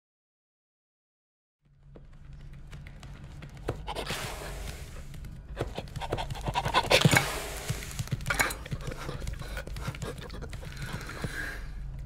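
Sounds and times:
claws clicking on tile floor: 0:04.7 - 0:12.0
dog panting: 0:05.6 - 0:07.2, 0:08.3 - 0:11.4.

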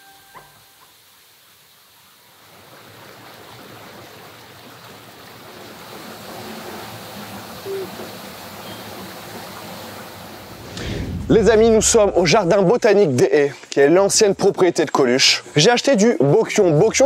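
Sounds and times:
water running over rocks: 0:00.4 - 0:10.8.

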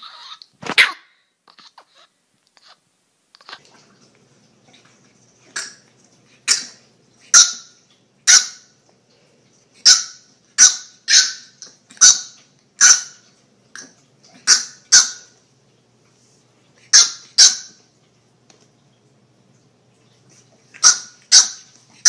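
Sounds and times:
puppy barking in high yaps: 0:00.0 - 0:01.2, 0:08.3 - 0:08.6, 0:09.8 - 0:13.2, 0:14.4 - 0:15.3, 0:16.9 - 0:17.8, 0:20.8 - 0:21.7.

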